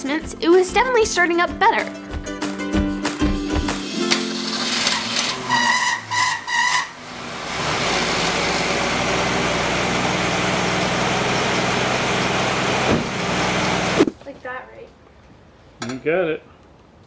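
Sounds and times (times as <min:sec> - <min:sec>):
car engine idling: 0:03.6 - 0:14.0.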